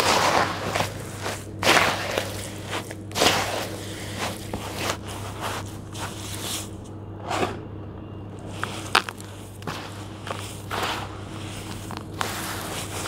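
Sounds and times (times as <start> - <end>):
wet gritty squishes of kneading: 0.0 - 6.9, 8.3 - 13.0
small stones clicking: 8.6 - 11.0.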